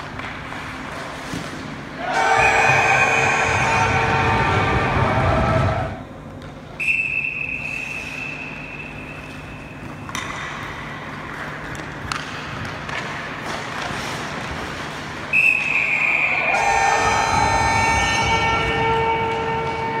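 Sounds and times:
steady low hum: 0.4s - 6.8s.

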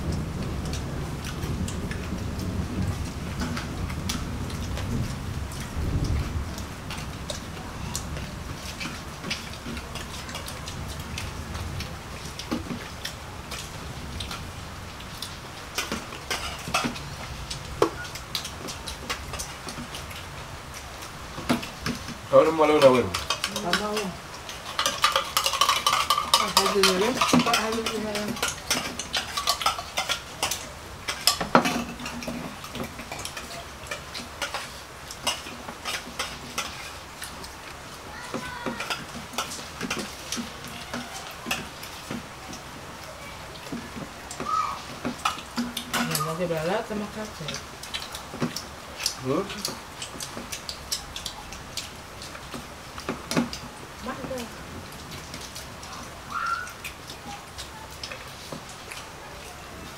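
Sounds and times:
dishes and spoon clinking: 15.8s - 17.0s, 22.8s - 36.9s, 45.0s - 46.3s.

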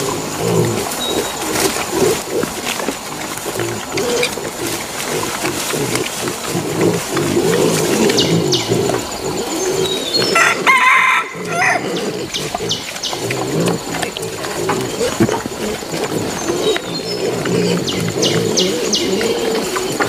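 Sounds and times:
boar and piglets grunting: 0.0s - 20.0s
rooster crowing: 10.4s - 11.9s.

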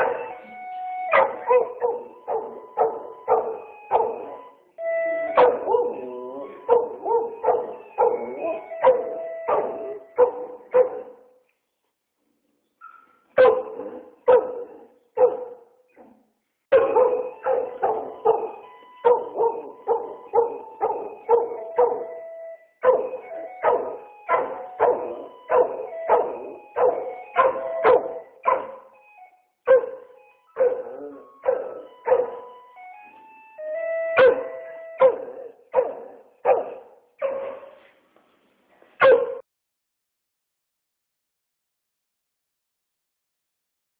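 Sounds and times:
dog barking: 0.0s - 0.3s, 1.1s - 4.5s, 5.4s - 11.3s, 12.8s - 16.1s, 16.7s - 22.1s, 22.8s - 28.9s, 29.7s - 32.6s, 34.2s - 37.9s, 39.0s - 39.4s.

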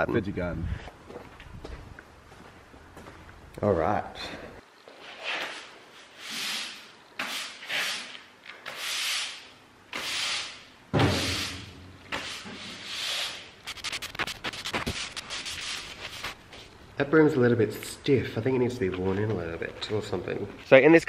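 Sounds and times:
push broom sweeping concrete: 5.0s - 16.4s
thump: 10.9s - 11.4s.

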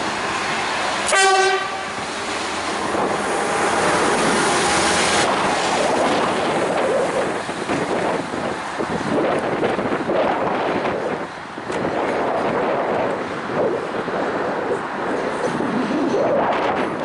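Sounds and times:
wheels clattering on rail: 0.0s - 17.0s
track machine horn blast: 1.1s - 1.9s.

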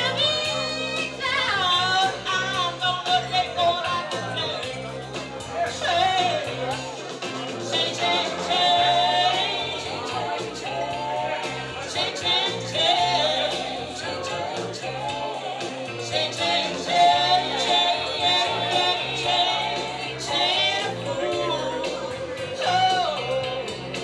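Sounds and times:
woman singing into a microphone: 0.0s - 4.6s
backing music with bass and drums: 0.0s - 24.0s.

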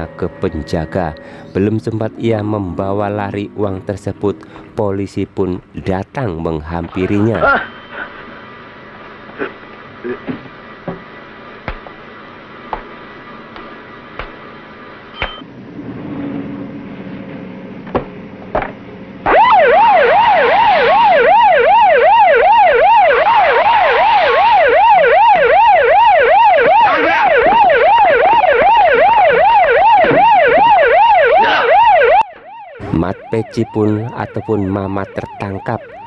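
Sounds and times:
police siren wailing: 0.0s - 5.5s, 19.2s - 36.0s.

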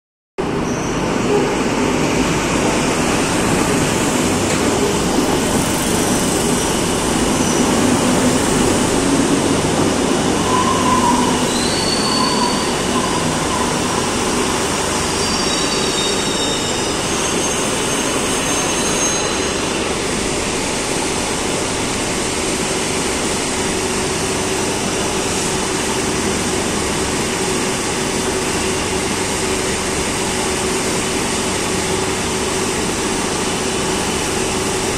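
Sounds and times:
train equipment hum: 0.5s - 18.5s
wheel and brake squeals: 0.6s - 1.5s, 7.4s - 7.9s, 10.4s - 14.1s, 15.0s - 19.9s.

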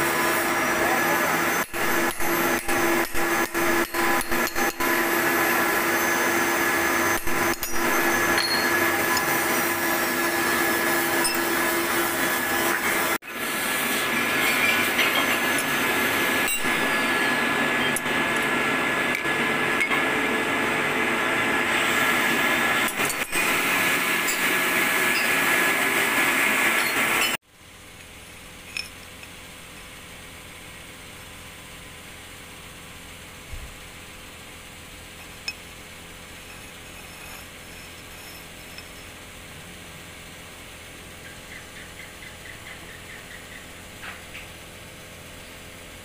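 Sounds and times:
metallic cutting noise: 0.0s - 20.2s, 21.6s - 27.4s
milling machine humming and whining: 0.0s - 27.4s.

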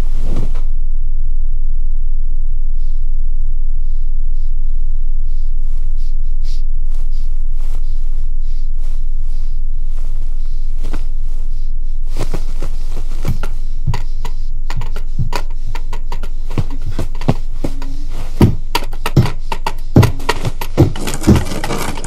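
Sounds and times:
low drone: 0.0s - 22.0s
sharp clicks and knocks: 13.2s - 22.0s.

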